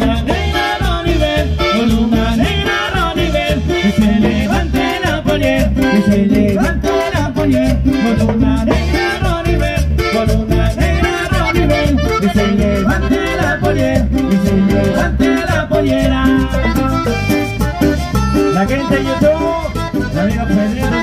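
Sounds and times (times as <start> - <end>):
accordion melody: 0.0 - 21.0
acoustic guitar: 0.0 - 21.0
bass guitar: 0.0 - 21.0
drum beat: 0.0 - 21.0.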